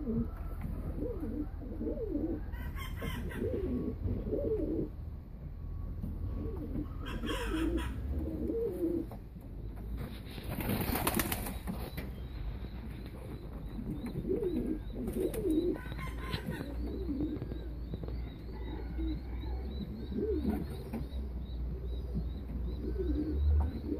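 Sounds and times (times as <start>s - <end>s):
pigeons cooing: 0.0s - 5.0s, 6.1s - 9.8s, 10.6s - 23.9s
wings flapping: 10.0s - 12.1s.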